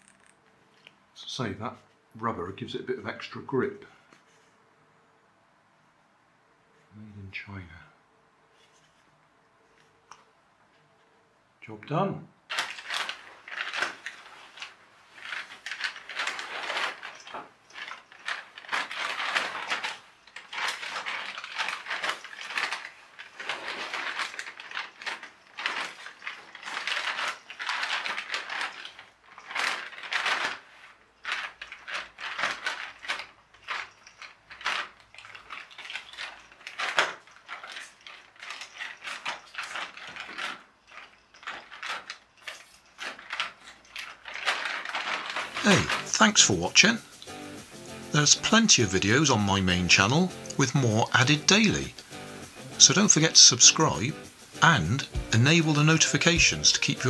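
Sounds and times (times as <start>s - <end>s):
toy motor whirring and clattering: 0.0s - 0.4s, 12.5s - 57.0s.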